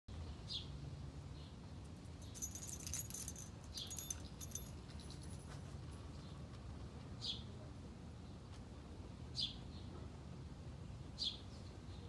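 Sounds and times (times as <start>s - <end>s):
metal dog tags jingling: 2.2s - 5.6s.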